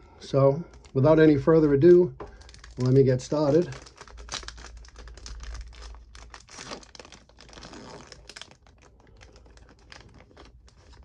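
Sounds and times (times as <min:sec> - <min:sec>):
wrapper tearing and crinkling: 0:02.3 - 0:11.0.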